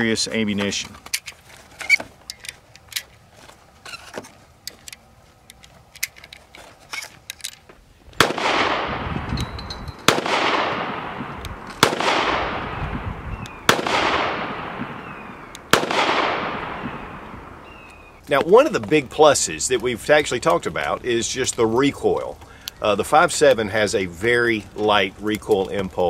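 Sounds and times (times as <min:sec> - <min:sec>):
pistol shots echoing: 0:08.2 - 0:09.2, 0:10.0 - 0:12.9, 0:13.6 - 0:17.8.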